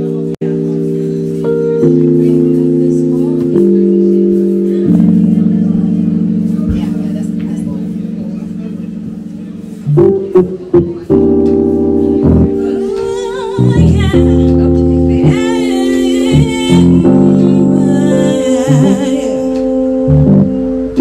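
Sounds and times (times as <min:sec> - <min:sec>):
electronic keyboard chords: 0:00.0 - 0:21.0
woman singing into microphone: 0:12.2 - 0:20.8.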